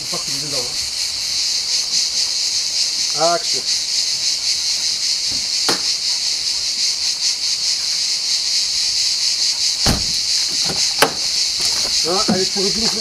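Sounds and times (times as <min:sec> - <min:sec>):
cicadas buzzing: 0:00.0 - 0:13.0
low thump: 0:09.8 - 0:11.2.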